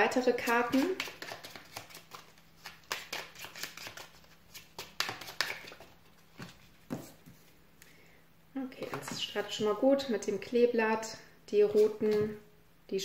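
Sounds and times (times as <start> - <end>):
cards being shuffled: 0.4 - 7.5, 11.7 - 12.4.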